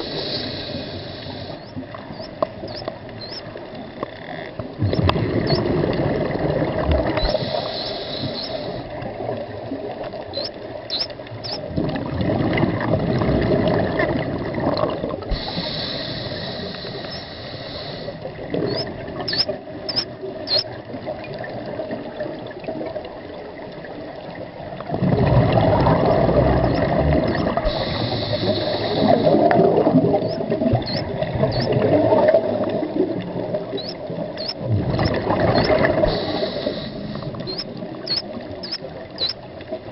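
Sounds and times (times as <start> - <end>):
underwater sloshing and bubbling: 0.0 - 39.9
high squeaks: 1.6 - 3.4, 4.9 - 5.6, 10.3 - 11.6, 18.7 - 20.7, 26.6 - 27.6, 30.2 - 31.8, 33.8 - 34.6, 35.5 - 35.8, 37.4 - 39.4.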